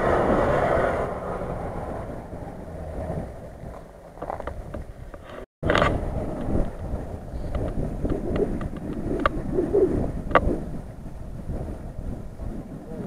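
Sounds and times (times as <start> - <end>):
suv engines running: 0.0 - 9.4
wind buffeting microphone: 0.0 - 13.0.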